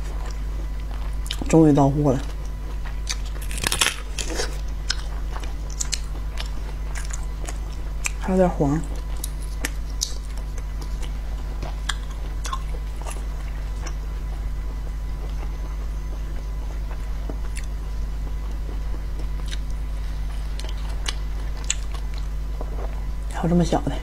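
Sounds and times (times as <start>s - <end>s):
steady low hum: 0.0s - 24.0s
shells being picked apart: 3.4s - 4.4s
chewing clicks and smacks: 4.7s - 8.2s, 8.9s - 14.0s, 19.2s - 19.8s, 20.5s - 22.3s.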